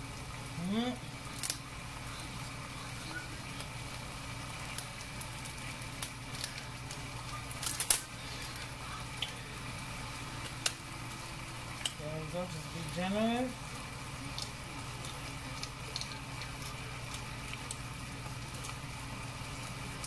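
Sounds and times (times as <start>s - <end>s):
rice crackling in a skillet: 0.0s - 20.0s
steady low hum: 0.0s - 20.0s.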